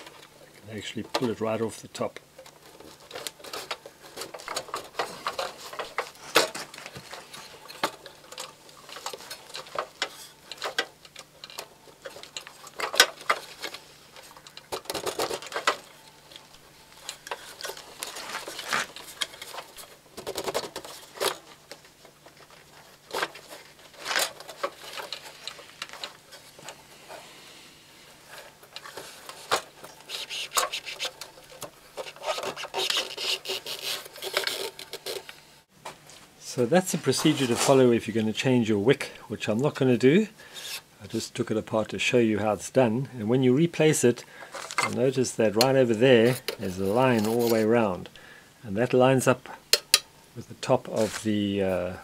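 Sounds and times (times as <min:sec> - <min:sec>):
sheet metal scraping and clicking: 0:28.3 - 0:35.4.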